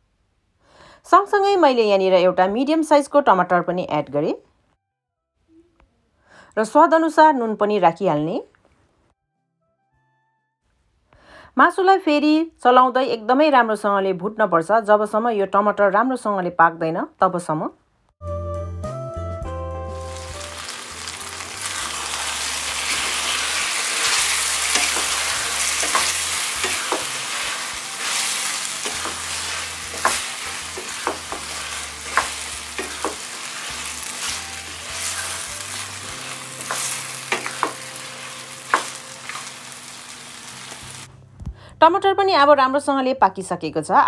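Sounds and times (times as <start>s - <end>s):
meat sizzling in oil: 20.0s - 41.1s
spatula scraping metal pan: 22.9s - 35.6s.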